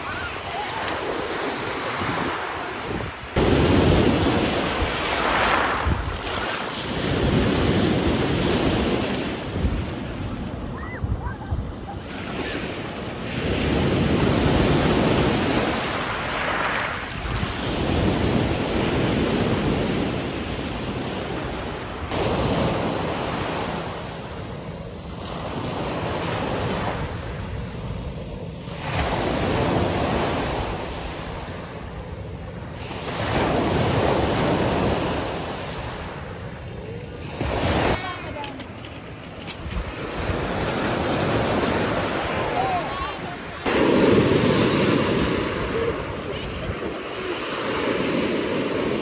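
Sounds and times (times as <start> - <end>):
wind on microphone: 1.8 - 22.8
waves washing on pebbles: 3.4 - 10.6, 12.1 - 24.3.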